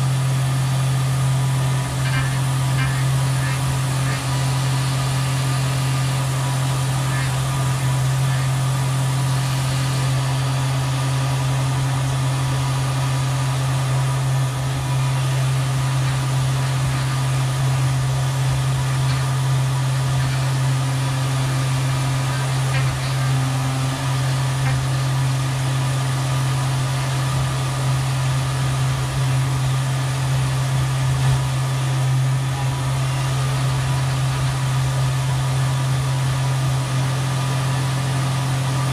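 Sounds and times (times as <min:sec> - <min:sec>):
mill spindle humming: 0:00.0 - 0:38.9.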